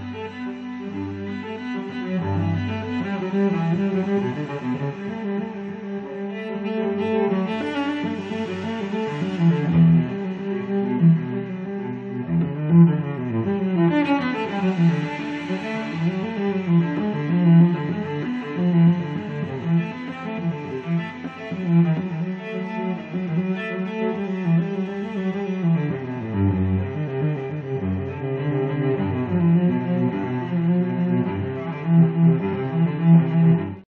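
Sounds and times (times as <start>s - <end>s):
slow low instrumental music: 6.9s - 25.9s.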